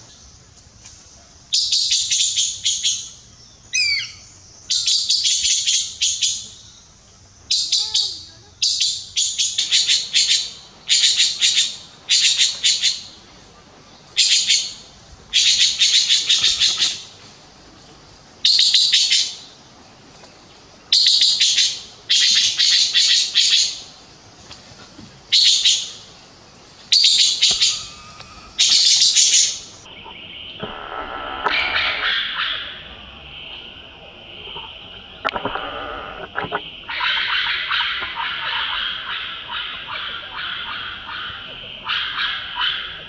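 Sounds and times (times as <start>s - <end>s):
magpie harsh rattling calls: 26.9s - 29.8s.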